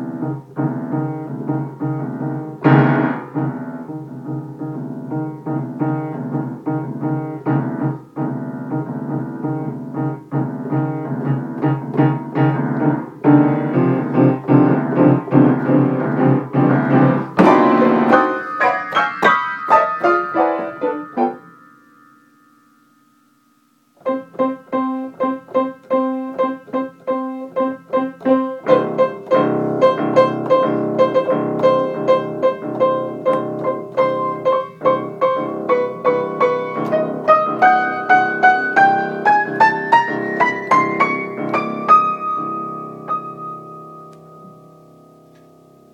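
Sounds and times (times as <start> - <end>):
piano improvisation: 0.0 - 45.9.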